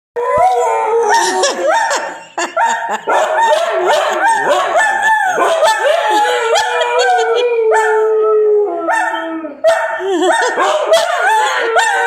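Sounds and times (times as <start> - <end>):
dog howling calls: 3.1 - 9.7, 10.4 - 12.0.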